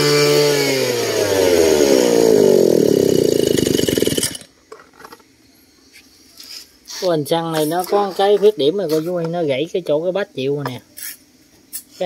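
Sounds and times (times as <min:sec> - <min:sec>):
small petrol engine running down: 0:00.0 - 0:04.5.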